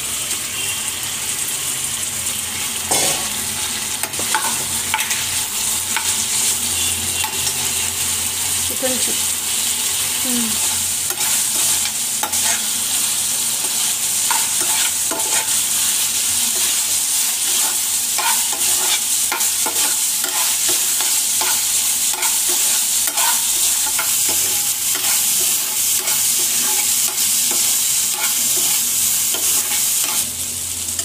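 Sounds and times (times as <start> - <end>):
food sizzling in a pan: 0.0 - 31.0
spatula scraping a pan: 2.6 - 7.8, 10.5 - 12.9, 13.6 - 30.3.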